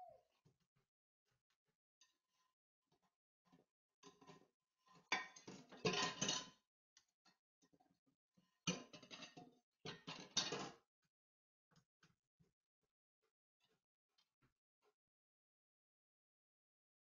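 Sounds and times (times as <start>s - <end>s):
dishes and cutlery clattering in sink: 4.1s - 6.6s, 8.7s - 10.8s.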